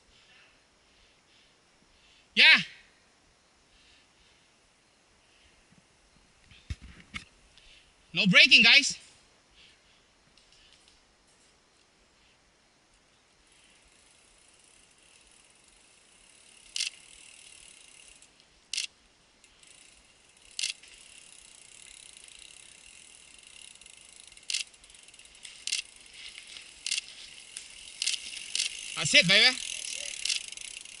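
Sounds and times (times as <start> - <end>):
bike freewheel ratcheting: 13.4 - 31.0.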